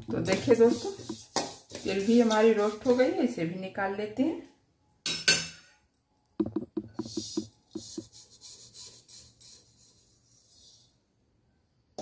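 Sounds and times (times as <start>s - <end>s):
metal pan scraping: 0.1s - 3.0s.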